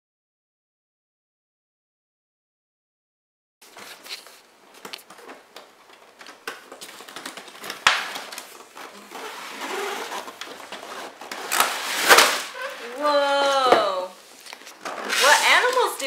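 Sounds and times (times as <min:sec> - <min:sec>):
rustling scrape: 0:03.6 - 0:04.4, 0:08.6 - 0:13.2, 0:14.2 - 0:16.0.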